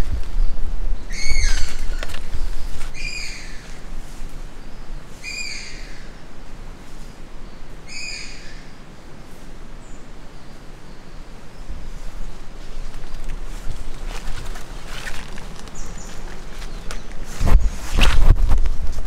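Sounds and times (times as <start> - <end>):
footsteps on forest floor: 12.6 - 18.3.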